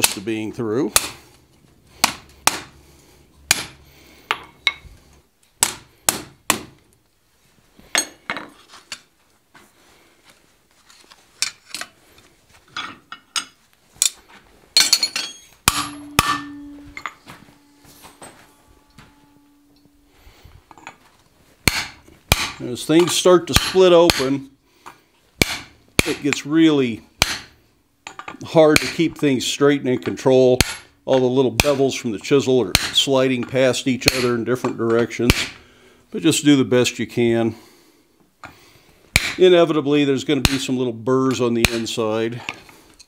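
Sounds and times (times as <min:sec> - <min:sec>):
faint steady hum: 0:01.0 - 0:23.0
hammer striking metal on anvil: 0:03.5 - 0:04.8, 0:14.8 - 0:20.0, 0:21.7 - 0:24.4, 0:25.4 - 0:26.4, 0:27.2 - 0:27.5, 0:30.6 - 0:30.9, 0:35.3 - 0:35.6.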